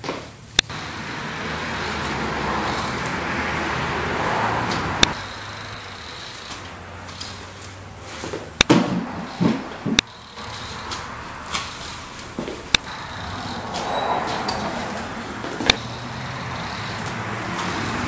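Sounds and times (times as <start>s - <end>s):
bike wheels thumping on concrete: 0.0s - 1.2s, 1.8s - 16.0s
bike tyres rolling on concrete: 0.0s - 18.0s
sharp clicks: 0.6s - 0.8s, 4.7s - 7.5s, 10.0s - 12.0s, 12.7s - 18.0s.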